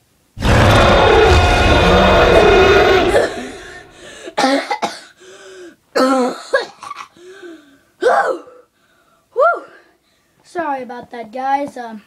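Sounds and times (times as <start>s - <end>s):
person coughing: 3.1s - 5.2s, 6.0s - 7.2s.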